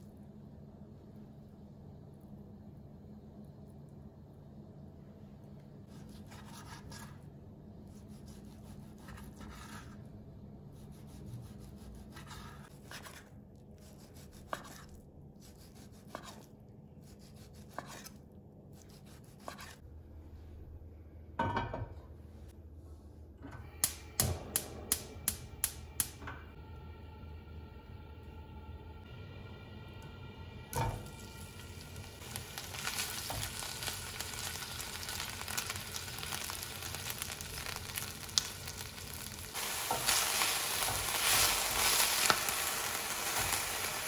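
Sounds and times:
gas stove igniter clicking: 23.6s - 26.4s.

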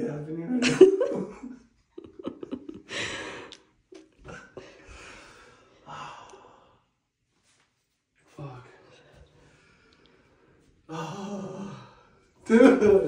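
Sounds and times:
person breathing hard: 2.8s - 7.0s.

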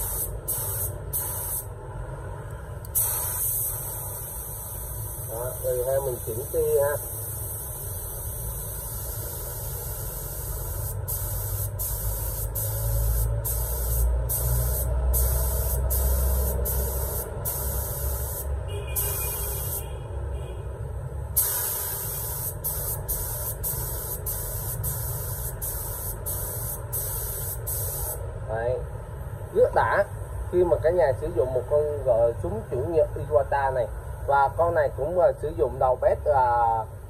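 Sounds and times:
spray gun hissing: 0.0s - 1.7s, 2.9s - 19.8s, 21.4s - 28.2s.

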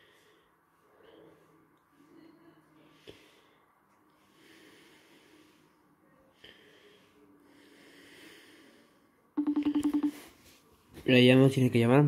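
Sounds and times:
faint breathing: 0.0s - 9.3s.

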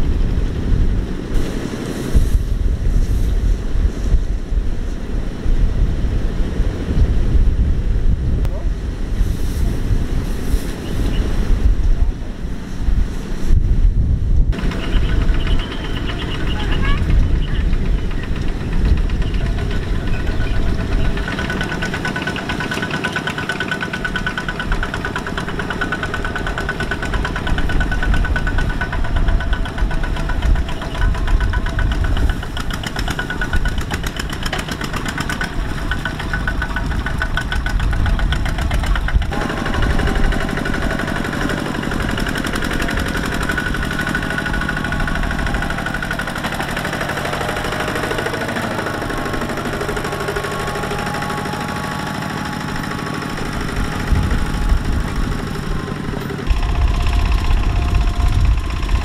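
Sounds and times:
diesel tractor engine chugging: 14.5s - 59.0s.

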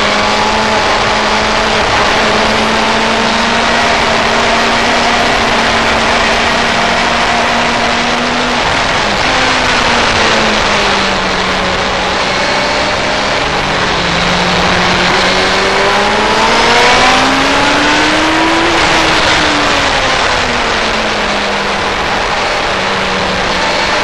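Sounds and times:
constant rushing noise: 0.0s - 24.0s
motorcycle engine running hard: 0.0s - 24.0s.

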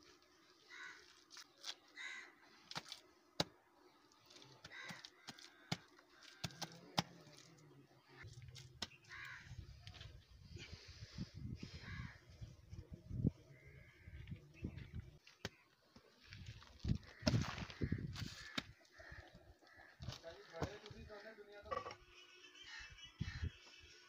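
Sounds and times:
crows cawing: 0.6s - 1.2s, 2.0s - 2.4s, 4.6s - 6.8s, 9.0s - 9.6s, 11.8s - 12.2s, 13.5s - 14.4s, 16.9s - 21.8s.

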